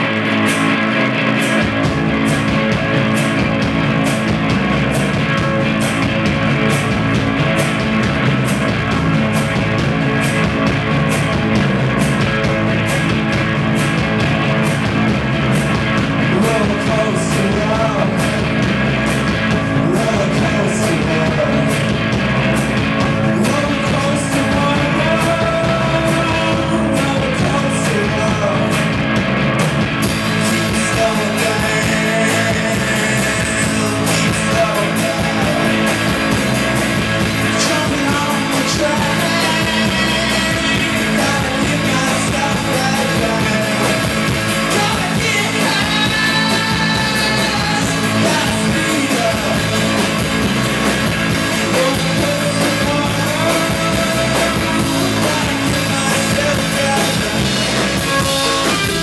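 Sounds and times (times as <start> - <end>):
drum kit: 0.0 - 59.0
electric bass: 0.0 - 59.0
electric guitar: 0.0 - 59.0
person singing: 16.2 - 18.5, 19.4 - 22.0, 23.0 - 29.0, 30.2 - 50.5, 51.5 - 59.0.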